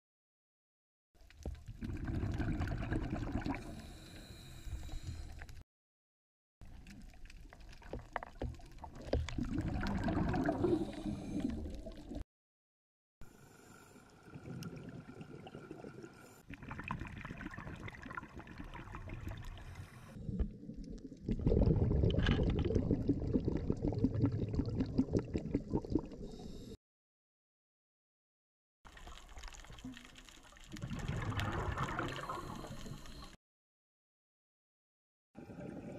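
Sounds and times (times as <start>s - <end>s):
underwater exhaust bubbles gurgling: 1.7s - 5.4s, 7.9s - 12.2s, 14.4s - 26.5s, 30.7s - 33.3s.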